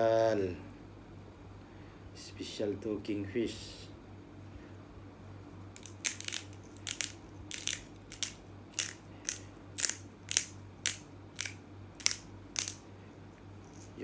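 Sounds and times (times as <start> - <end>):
salt grinder grinding: 5.8 - 12.8.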